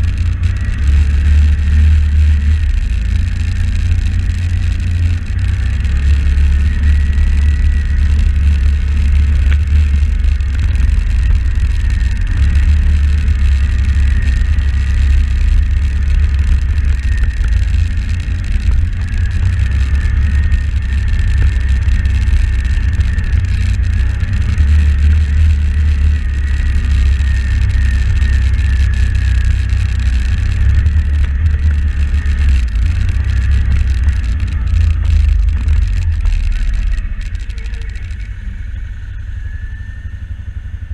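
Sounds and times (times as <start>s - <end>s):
atv engine running: 0.0s - 40.9s
faint wavering whine: 0.0s - 40.9s
wind rumble on microphone: 0.0s - 40.9s.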